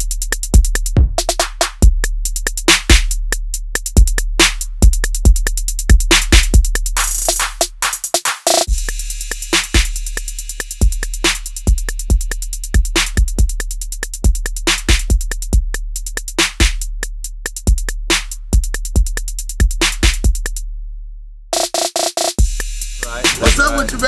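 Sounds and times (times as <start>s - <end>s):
drum machine beat: 0.0s - 20.6s, 21.6s - 24.0s
fast hi-hat ticks: 2.2s - 16.9s, 21.6s - 24.0s.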